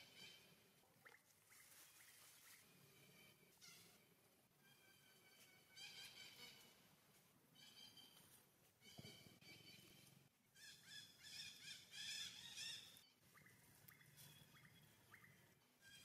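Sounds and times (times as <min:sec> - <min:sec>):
faint bird chirps: 0:08.8 - 0:16.0.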